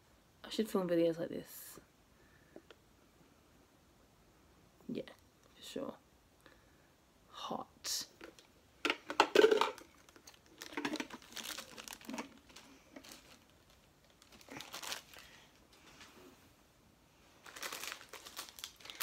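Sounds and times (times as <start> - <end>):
plastic packaging crinkling: 9.2 - 16.0, 17.4 - 19.0.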